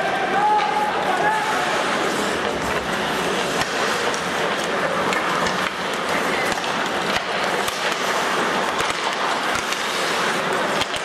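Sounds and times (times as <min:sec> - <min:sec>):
arena crowd murmur: 0:00.0 - 0:07.7
hockey sticks and puck clacking: 0:00.0 - 0:11.0
skates scraping ice: 0:00.0 - 0:11.0.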